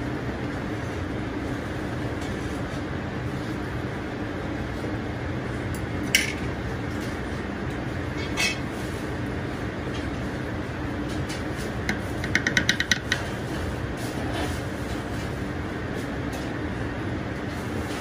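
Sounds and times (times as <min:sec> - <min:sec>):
chopsticks clicking on slate plate: 0:11.9 - 0:13.3
metal spoon tapping slate: 0:11.9 - 0:13.3.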